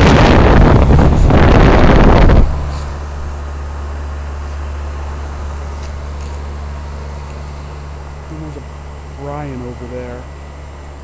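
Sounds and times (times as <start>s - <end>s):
fan air rushing across microphone: 0.0s - 11.0s
outdoor unit low hum: 0.0s - 11.0s.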